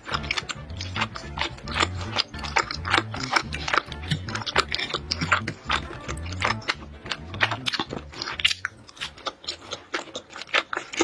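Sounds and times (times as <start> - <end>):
close chewing with mouth clicks: 0.0 - 11.0
quiet background music: 0.0 - 11.0.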